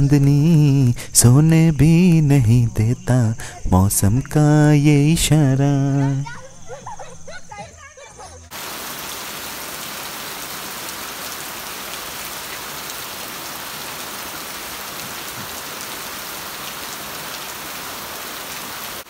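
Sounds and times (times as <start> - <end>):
rain falling on lawn and trees: 8.5 - 19.0.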